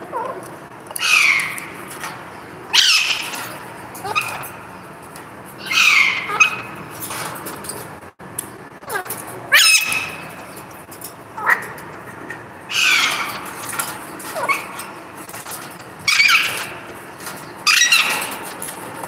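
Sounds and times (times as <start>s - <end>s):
parakeet harsh calls: 1.0s - 1.8s, 2.7s - 4.6s, 5.6s - 6.8s, 8.8s - 10.4s, 12.7s - 13.7s, 16.0s - 16.8s, 17.6s - 18.4s.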